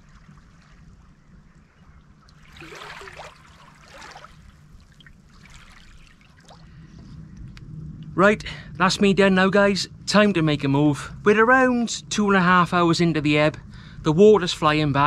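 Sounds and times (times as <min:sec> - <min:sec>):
wavelets lapping over stones: 0:02.3 - 0:06.7.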